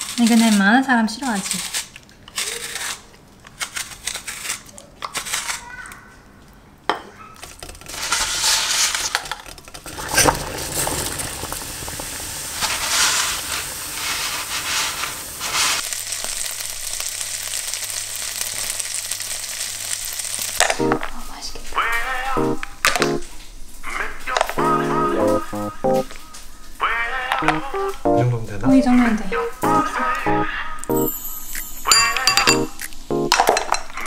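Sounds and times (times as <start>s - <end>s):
dumplings sizzling in oil: 10.0s - 20.6s.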